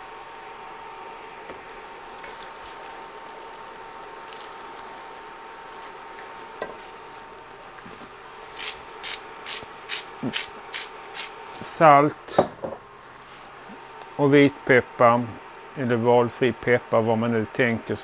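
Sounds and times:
spice mill grinding rasps: 3.3 - 11.6.

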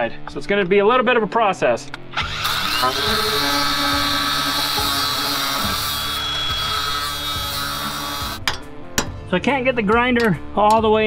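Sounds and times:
grinder cutting metal: 2.2 - 8.4.

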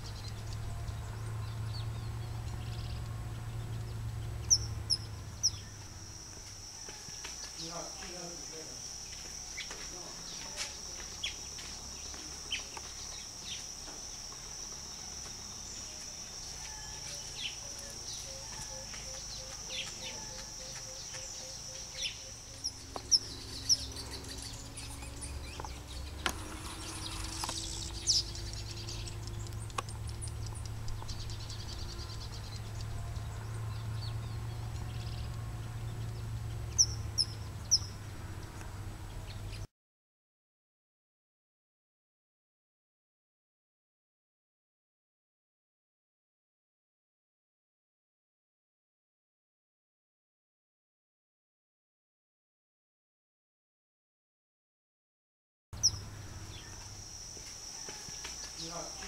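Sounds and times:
low steady hum: 0.0 - 7.0
bird chirps: 0.0 - 38.1, 55.8 - 59.0
high insect whine: 0.0 - 39.4, 55.8 - 59.0.

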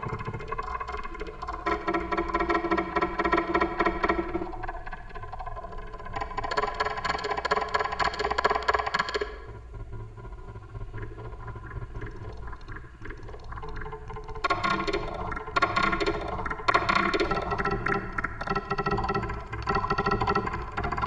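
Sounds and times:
low electronic drone: 9.5 - 21.0.

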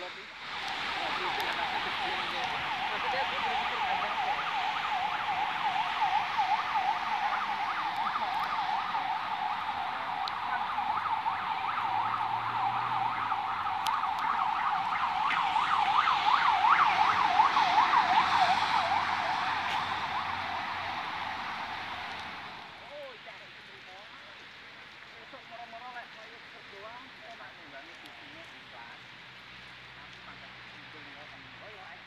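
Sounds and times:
emergency siren yelping: 0.4 - 22.8.

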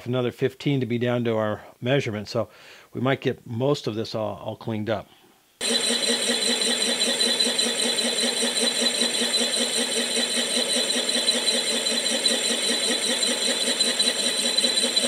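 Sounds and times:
milling machine whine: 5.6 - 15.0.

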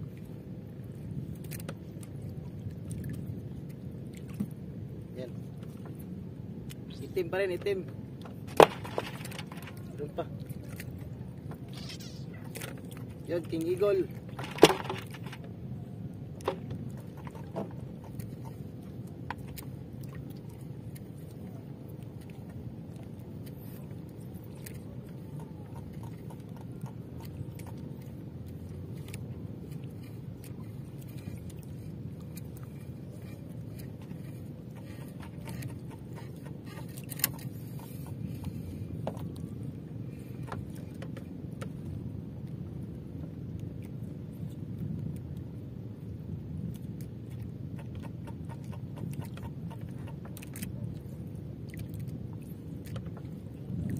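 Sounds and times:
open water rumble: 0.0 - 53.9
clicks and knocks of fishing line: 1.4 - 2.1, 8.2 - 10.0, 14.1 - 15.6, 16.4 - 23.9, 28.9 - 39.5.

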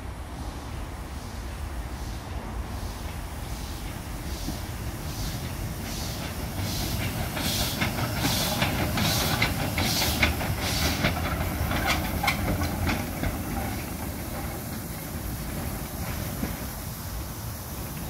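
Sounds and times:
steam locomotive chuffing: 0.0 - 18.0
wheels clicking and clanking: 5.3 - 18.0.

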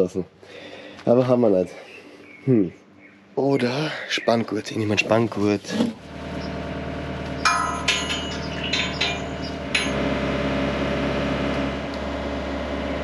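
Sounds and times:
engine running: 5.1 - 13.0
steel parts clanking: 7.4 - 10.1.

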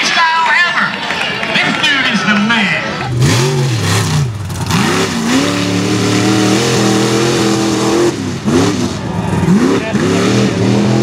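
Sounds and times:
truck engine revving hard: 2.9 - 11.0.

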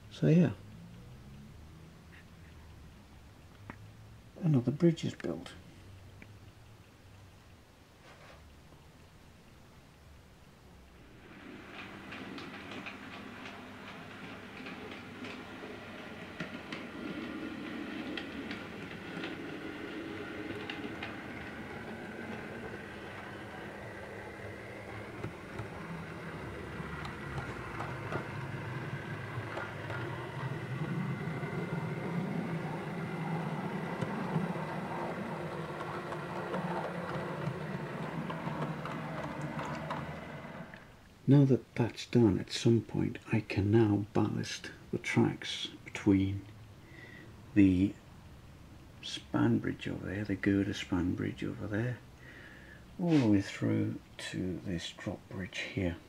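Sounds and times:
sharp ticks: 5.9 - 7.6
model train wheels clicking: 11.0 - 41.0
low motor hum: 11.0 - 41.1.

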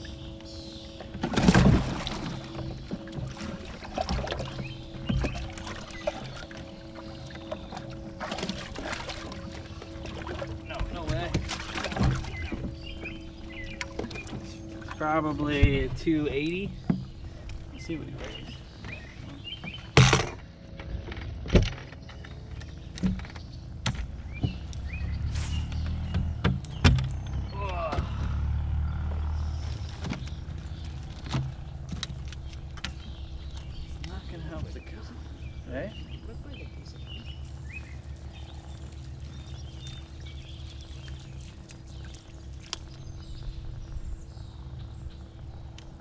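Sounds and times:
birds chirping: 0.0 - 46.0
low steady hum: 0.0 - 46.0
knocks and thumps on boat deck: 1.0 - 24.8, 25.9 - 27.2, 29.9 - 35.1.

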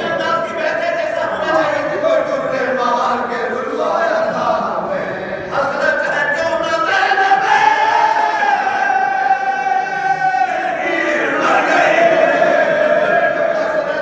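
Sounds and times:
men chanting unaccompanied: 0.0 - 14.0.

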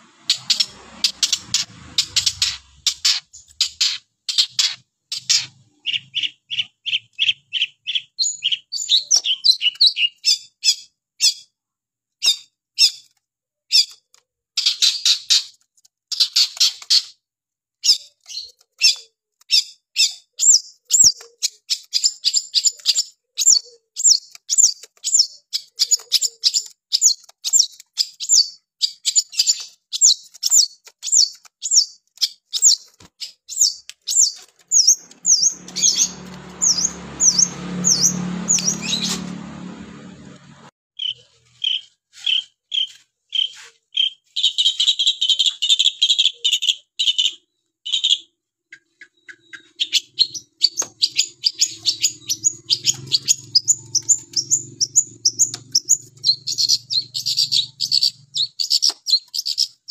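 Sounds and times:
bird singing sharp high notes: 33.5 - 40.4.

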